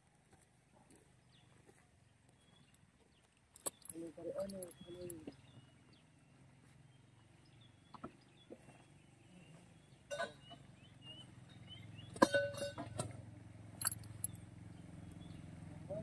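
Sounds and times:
low engine hum: 0:04.0 - 0:16.0
metallic ring: 0:12.2 - 0:13.1, 0:13.8 - 0:14.4
metal equipment clanking: 0:13.8 - 0:14.3.

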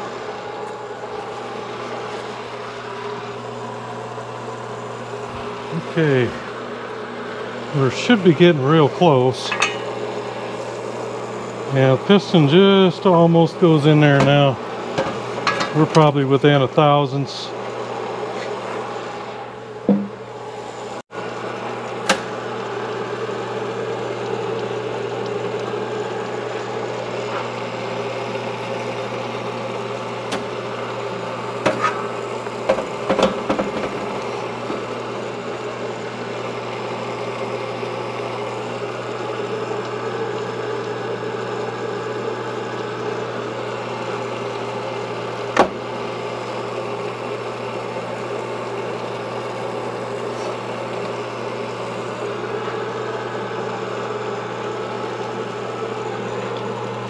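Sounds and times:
cylinder knocking against machine: 0:19.9 - 0:20.2.

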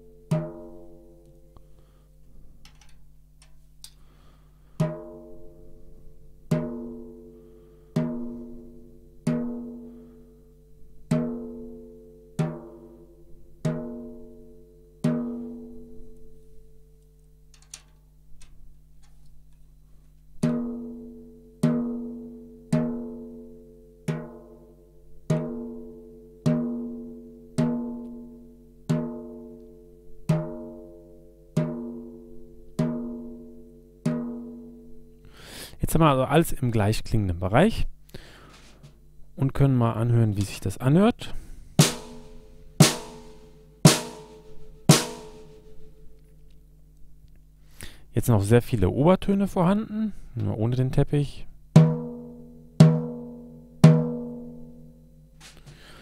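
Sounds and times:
drumstick tapping snare drum: 0:41.8 - 0:45.5.

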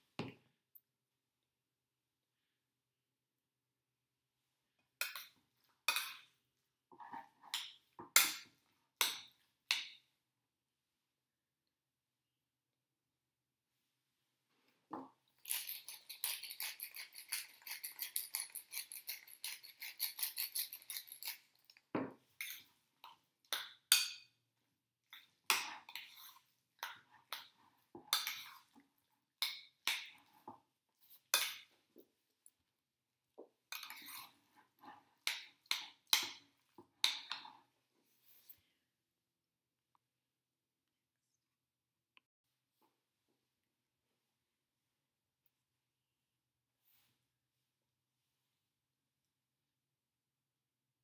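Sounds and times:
utensil scraping a bowl: 0:15.4 - 0:21.8, 0:25.6 - 0:28.8, 0:33.7 - 0:35.3.

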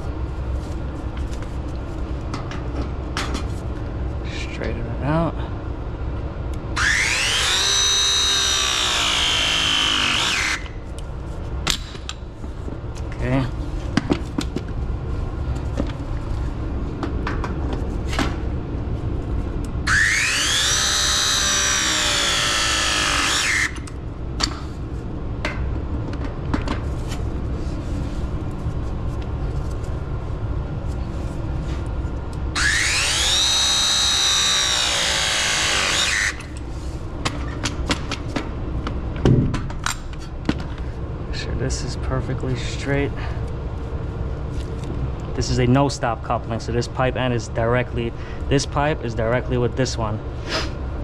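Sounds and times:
press tool motor whine: 0:06.8 - 0:10.8, 0:19.9 - 0:24.0, 0:32.6 - 0:36.6.

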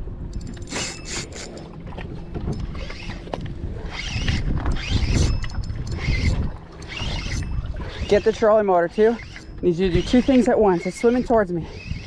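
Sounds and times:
wind: 0:00.0 - 0:12.0
water slapping boat hull: 0:01.5 - 0:12.0
spinning reel clicking and rubbing: 0:03.9 - 0:08.4, 0:09.0 - 0:12.0.

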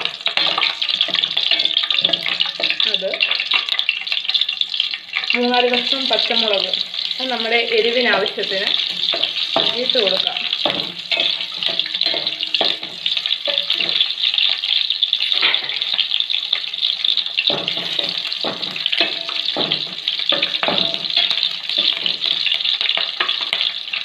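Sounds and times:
food sizzling in hot oil: 0:00.0 - 0:24.0
wooden spatula scraping pot: 0:08.1 - 0:14.1.

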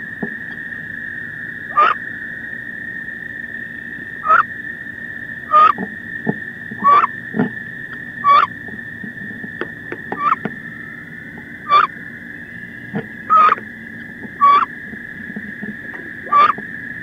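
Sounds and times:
duck calling: 0:01.7 - 0:02.0, 0:04.2 - 0:04.4, 0:05.5 - 0:05.8, 0:06.8 - 0:07.1, 0:08.2 - 0:08.5, 0:10.1 - 0:10.5, 0:11.6 - 0:11.9, 0:12.9 - 0:13.6, 0:14.4 - 0:14.7, 0:16.3 - 0:16.6
steady high tone: 0:11.6 - 0:14.7.

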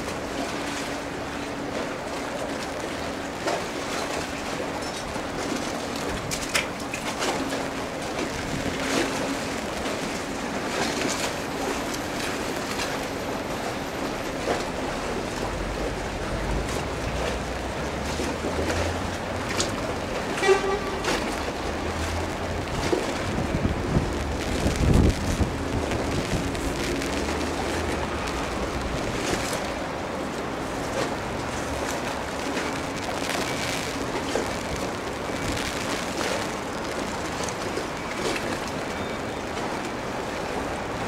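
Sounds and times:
distant traffic hum: 0:00.0 - 0:41.0
low engine rumble: 0:11.4 - 0:38.6
short horn toot: 0:20.4 - 0:21.2.

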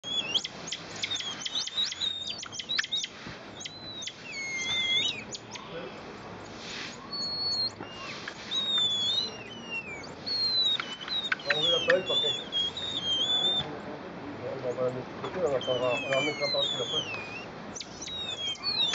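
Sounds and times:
tamarins whistling: 0:00.0 - 0:13.9, 0:14.7 - 0:18.9
tamarins chirping: 0:00.0 - 0:18.9.

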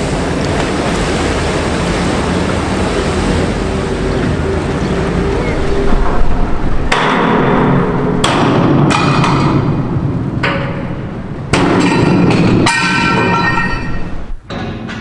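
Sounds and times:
hammer striking steel: 0:10.4 - 0:15.0.

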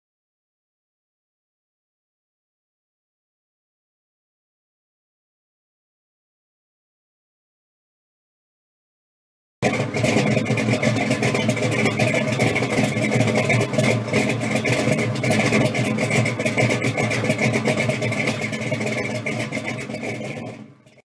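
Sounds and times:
car engine idling: 0:09.6 - 0:21.0.

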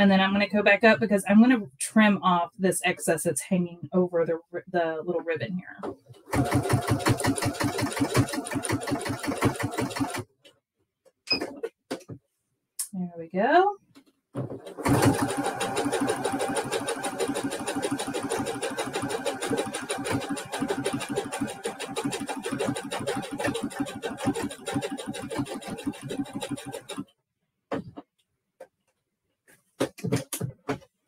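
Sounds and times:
sewing machine stitching: 0:06.2 - 0:10.2, 0:14.5 - 0:27.1.

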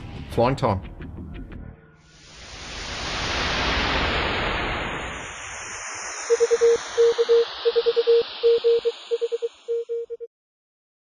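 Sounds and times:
whoosh of noise: 0:02.1 - 0:09.9
morse code beeps: 0:06.3 - 0:10.3.

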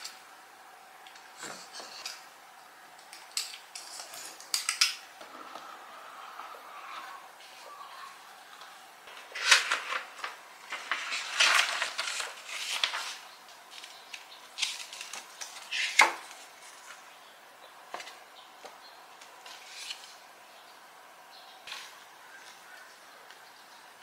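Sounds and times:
paper and cardboard rustling: 0:08.6 - 0:17.1.

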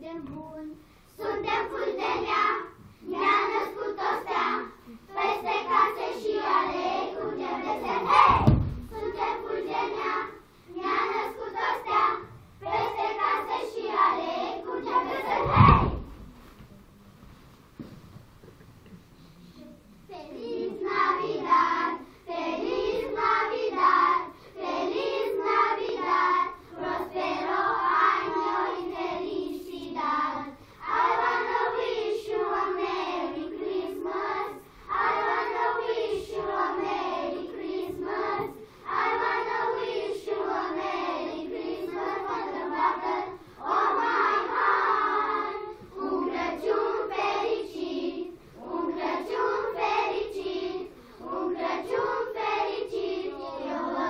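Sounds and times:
children singing in unison: 0:01.1 - 0:16.2, 0:20.1 - 0:54.0.

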